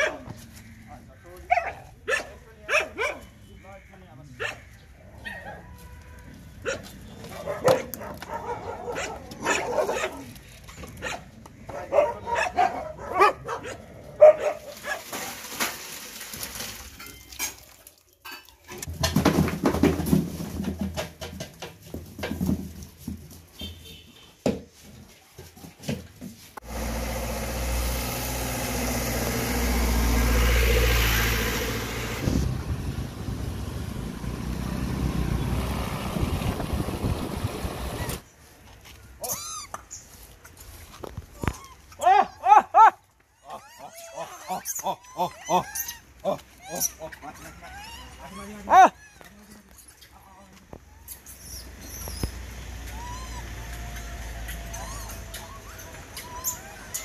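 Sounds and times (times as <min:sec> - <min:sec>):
dogs whining and barking: 0:06.6 - 0:10.3, 0:41.4 - 0:50.0, 0:50.8 - 0:57.0
motor scooter engine: 0:26.6 - 0:38.2
wind rushing: 0:35.2 - 0:38.2.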